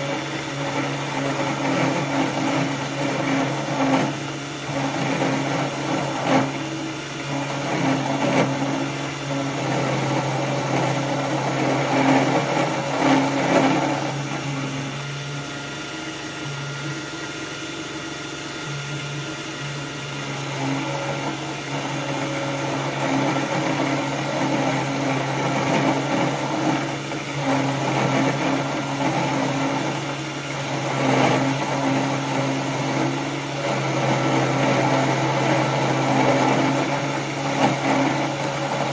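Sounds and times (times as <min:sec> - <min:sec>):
end mill cutting metal: 0:00.0 - 0:38.9
motor spindle hum: 0:00.0 - 0:38.9.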